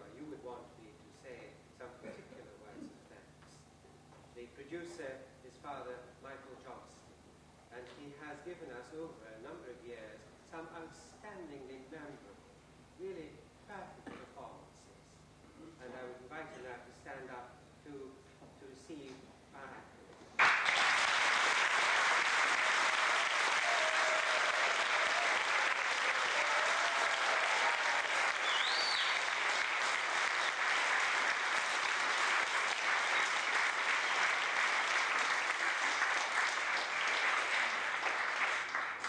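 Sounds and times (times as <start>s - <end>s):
audience applauding: 20.4s - 39.0s.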